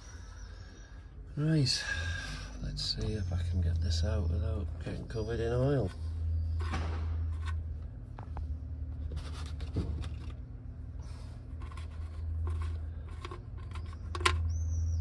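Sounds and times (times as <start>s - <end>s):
steady low hum: 0.0s - 15.0s
fingers scraping sump plug: 11.5s - 14.6s.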